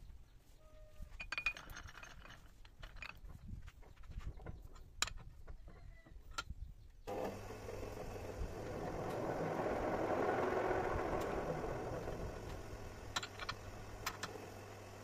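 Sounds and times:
lathe machine whir: 7.1s - 15.0s.

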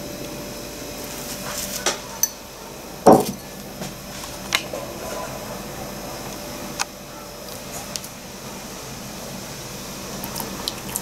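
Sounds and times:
crockery clinking and knocking: 3.1s - 3.5s.

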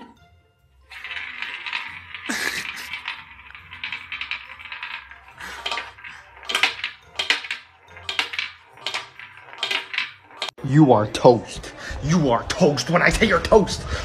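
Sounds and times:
background music: 0.0s - 14.0s
toy roulette wheel clicking: 0.9s - 10.6s.

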